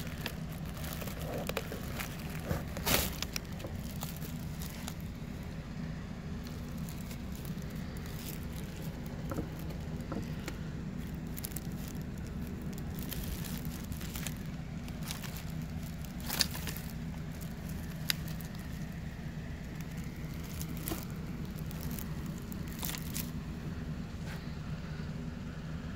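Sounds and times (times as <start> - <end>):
plastic packaging crinkling: 0.0 - 5.6, 6.3 - 23.5
steady low hum: 0.0 - 25.9.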